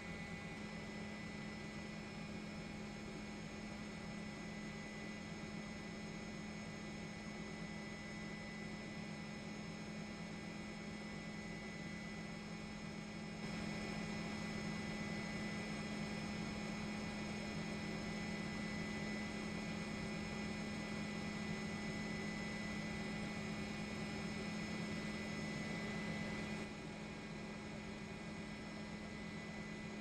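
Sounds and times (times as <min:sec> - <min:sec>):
faint high whines: 0:00.0 - 0:30.0
steady low hum: 0:08.7 - 0:30.0.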